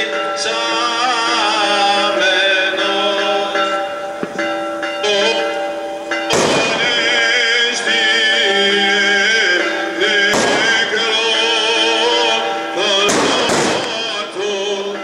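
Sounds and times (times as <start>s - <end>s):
church bells ringing: 0.0s - 15.0s
voices singing: 0.0s - 15.0s
loud firework bang: 6.3s - 7.1s, 10.3s - 11.0s, 13.0s - 14.2s.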